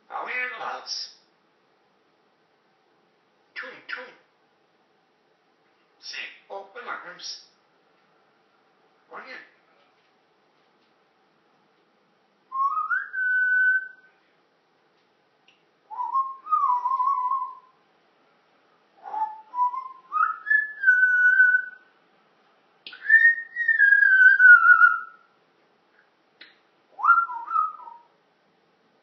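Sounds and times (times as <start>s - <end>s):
parrot whistling: 12.5s - 14.1s, 15.9s - 17.8s, 19.0s - 21.9s, 22.9s - 25.3s, 26.9s - 28.1s.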